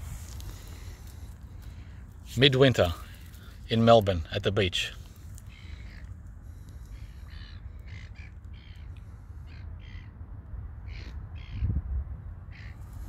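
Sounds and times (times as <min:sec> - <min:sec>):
bird calling: 0:04.7 - 0:10.1, 0:10.8 - 0:11.7, 0:12.5 - 0:13.0.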